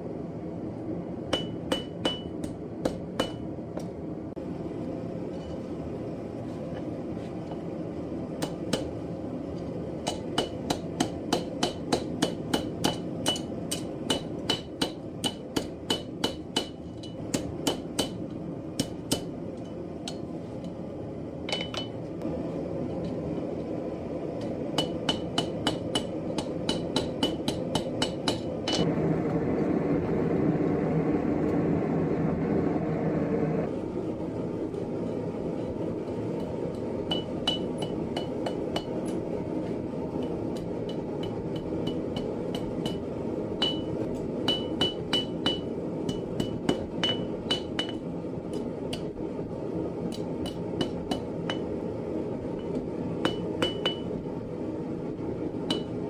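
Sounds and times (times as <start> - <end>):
steady rumble: 0.0 - 56.0
hammer striking steel on anvil: 1.3 - 4.0, 8.4 - 9.0, 10.0 - 20.3, 21.5 - 22.0, 24.4 - 28.9, 36.4 - 39.3, 40.1 - 49.2, 50.1 - 51.8, 52.5 - 54.2, 55.7 - 56.0.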